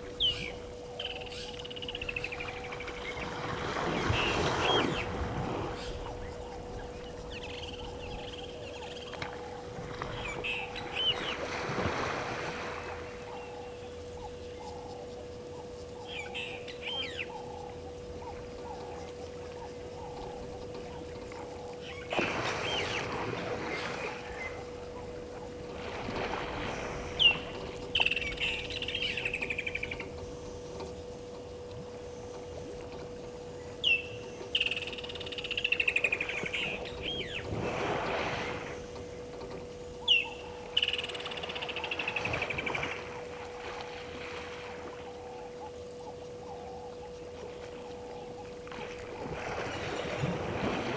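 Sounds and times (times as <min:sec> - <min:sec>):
faint steady hum: 0:00.0 - 0:50.9
bird call with rattling trill: 0:00.2 - 0:02.5, 0:16.0 - 0:17.6, 0:27.2 - 0:30.3, 0:33.8 - 0:37.5, 0:40.0 - 0:43.0
elephant splashing in water: 0:48.8 - 0:50.9.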